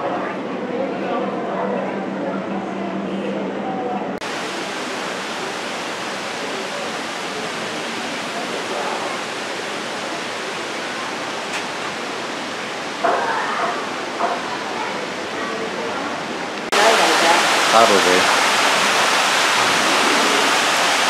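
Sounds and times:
steady broadband rushing noise: 4.2 - 13.0, 13.9 - 21.0.

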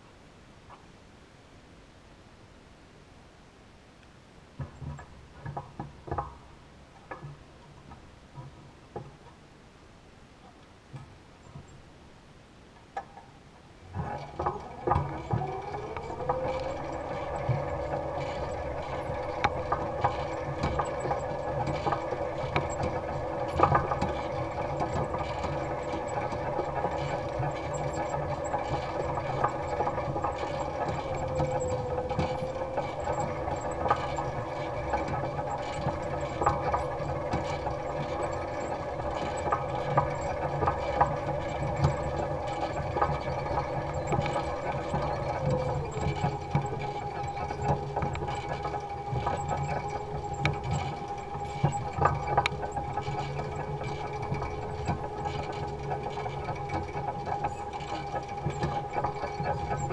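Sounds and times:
rattles and knocks: 4.6 - 9.4, 12.8 - 59.9
electric motor whining: 14.0 - 40.2.

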